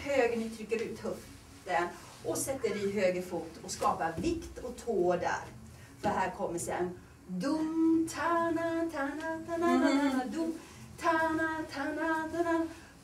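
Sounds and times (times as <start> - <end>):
woman singing wordlessly: 7.3 - 12.8.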